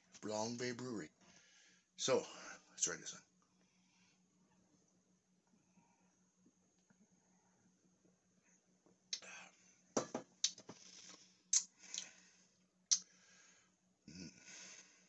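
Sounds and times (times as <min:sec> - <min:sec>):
glass mug set on table: 0:10.0 - 0:10.3
lip smacks: 0:11.5 - 0:12.1, 0:12.9 - 0:13.1
breathy exhales: 0:13.1 - 0:15.0.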